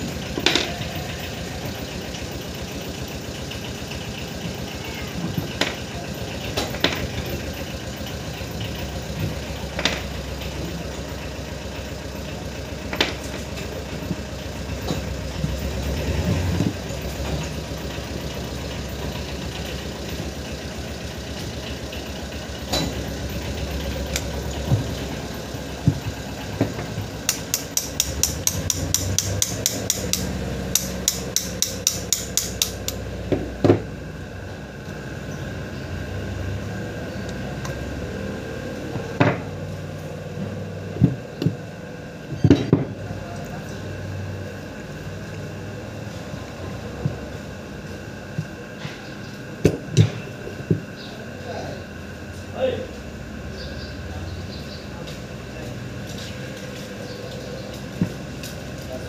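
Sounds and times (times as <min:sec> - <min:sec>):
low machine hum: 0:00.0 - 0:59.0
metal clicks and knocks: 0:26.6 - 0:33.0.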